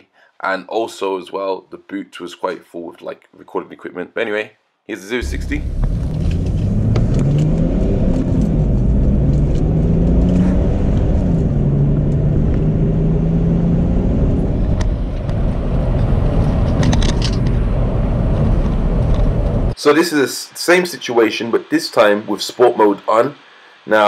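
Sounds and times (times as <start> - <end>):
diesel engine accelerating: 5.2 - 19.8.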